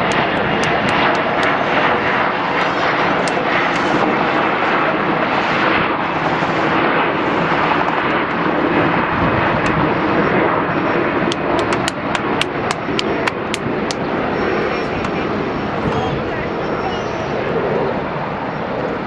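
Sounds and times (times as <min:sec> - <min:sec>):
jet engines running: 0:00.0 - 0:19.0
sharp clicks: 0:11.3 - 0:14.0.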